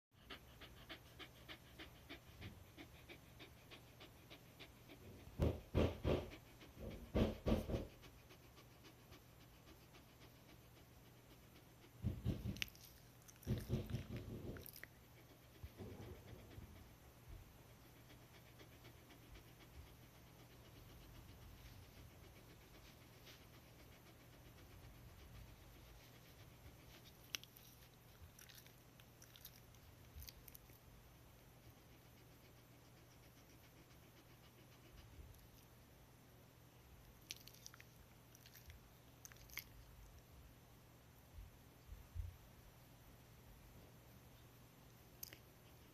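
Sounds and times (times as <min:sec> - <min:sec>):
dog panting: 0:00.1 - 0:35.8.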